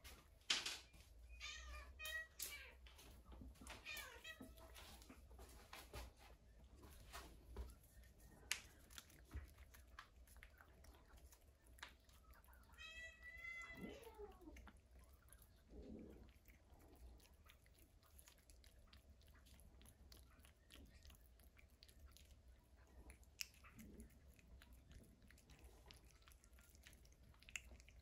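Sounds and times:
cat meowing: 1.4 - 2.8, 12.7 - 14.6.

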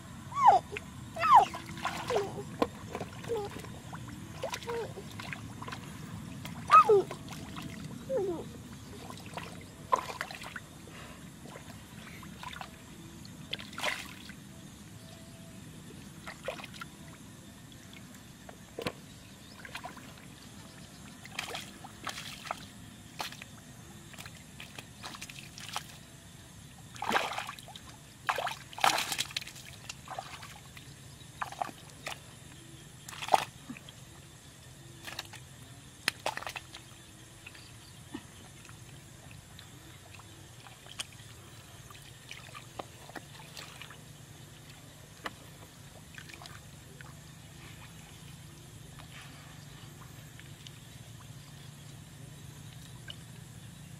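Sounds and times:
hands splashing in muddy water: 27.0 - 30.6, 33.0 - 33.6, 36.0 - 36.9.

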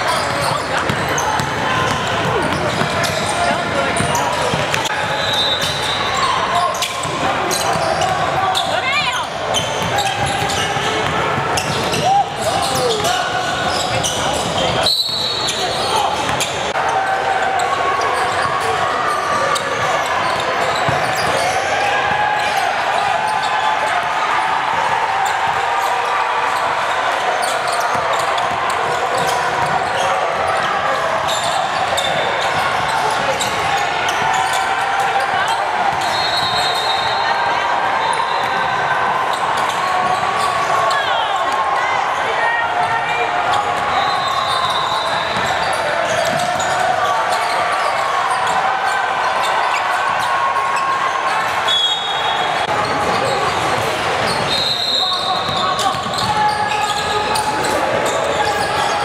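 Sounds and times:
sneakers squeaking: 0.0 - 16.8, 17.5 - 59.0
murmur of voices: 0.0 - 59.0
basketball bouncing on wooden court: 0.2 - 4.9, 45.3 - 46.8.

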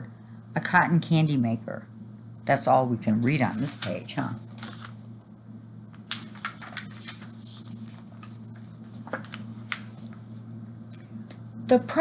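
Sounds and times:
steady low hum: 0.0 - 12.0
book pages rustling: 3.4 - 5.0, 5.9 - 10.5.

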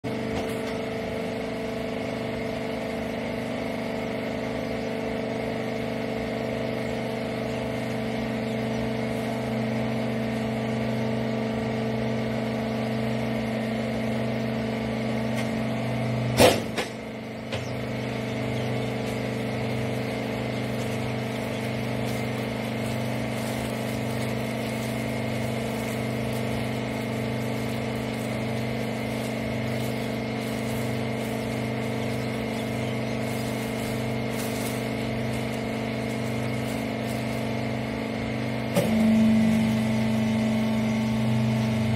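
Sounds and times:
hydraulic pump motor humming: 0.0 - 41.9
sharp machine clunk: 16.4 - 17.6.

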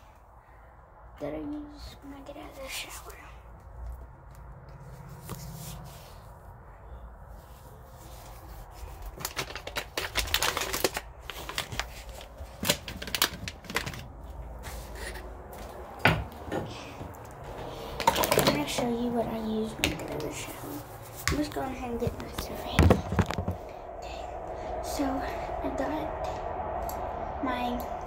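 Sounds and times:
toiletries clicking and rustling: 17.9 - 18.9.

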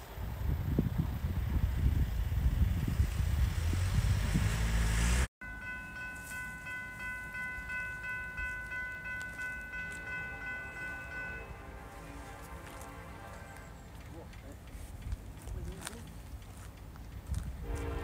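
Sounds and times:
wind buffeting microphone: 0.0 - 4.9, 12.2 - 18.0
distant train horn: 8.4 - 14.9, 17.6 - 18.0.

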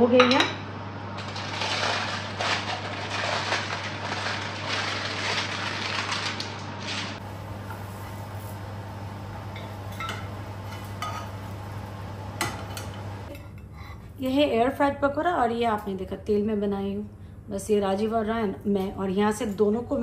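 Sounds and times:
steady low hum: 7.2 - 14.2
air fryer basket clattering: 9.4 - 13.3
metal spatula clinking on pan: 9.6 - 11.4.

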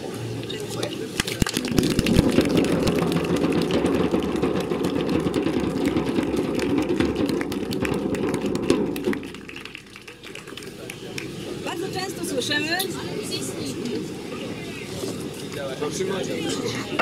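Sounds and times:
crowd applauding: 1.2 - 11.5.

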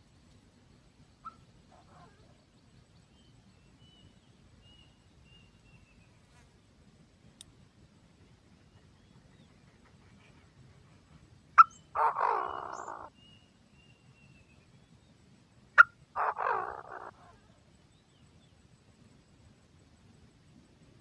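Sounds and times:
harsh bird calls: 11.6 - 13.3, 15.8 - 17.6.

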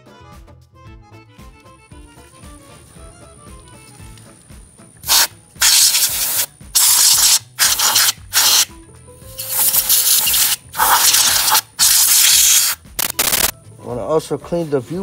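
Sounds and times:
aerosol spray can hissing: 5.0 - 8.7, 9.3 - 13.5.

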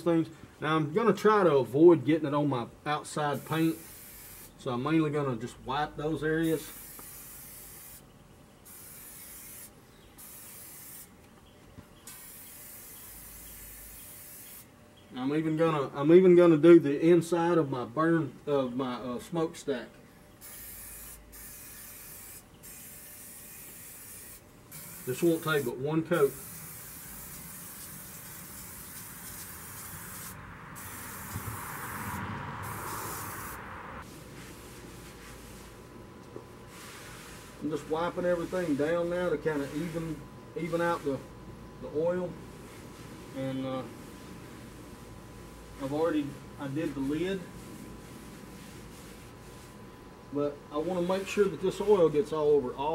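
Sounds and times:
oil spray hissing: 3.4 - 4.6, 8.7 - 11.1, 12.1 - 14.7, 20.4 - 33.6.

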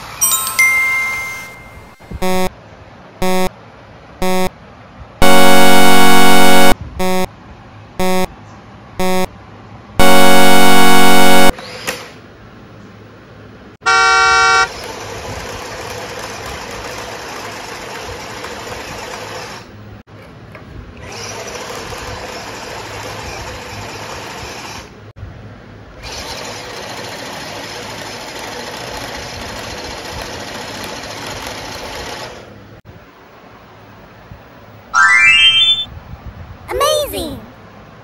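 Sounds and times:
horn blast: 5.2 - 7.3, 10.0 - 11.5
toy truck motors whirring: 14.6 - 19.7, 21.0 - 24.9, 26.0 - 32.5.

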